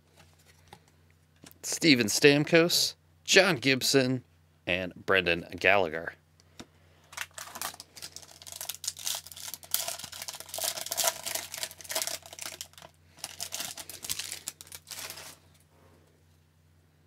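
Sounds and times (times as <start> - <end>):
foil wrapper tearing and crinkling: 7.2 - 15.4.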